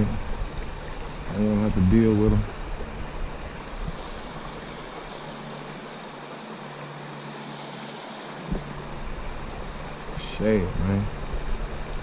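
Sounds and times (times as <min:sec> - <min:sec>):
wind rumble on microphone: 0:00.0 - 0:05.9
river water over rocks: 0:00.0 - 0:12.0.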